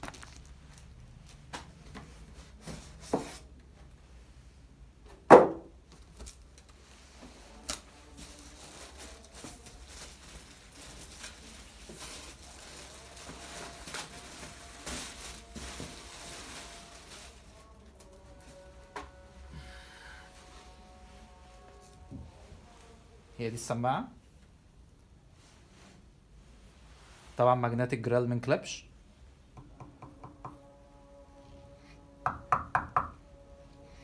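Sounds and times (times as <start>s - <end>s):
packing material rustling: 0.0s - 1.4s, 7.5s - 18.7s
knocks against cardboard box: 5.3s - 5.7s.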